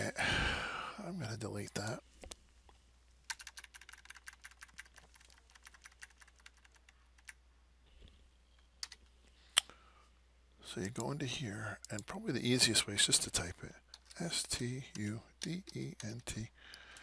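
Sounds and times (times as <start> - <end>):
computer keyboard keys tapping: 3.3 - 7.4.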